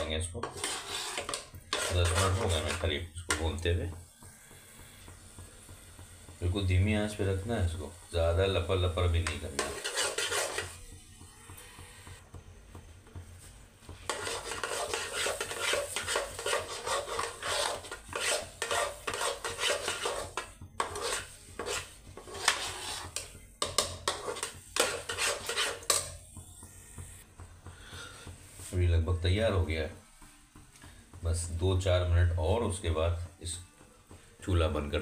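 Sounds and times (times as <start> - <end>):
metal spatula scraping pan: 0.0 - 4.5, 6.6 - 10.9, 14.0 - 26.2.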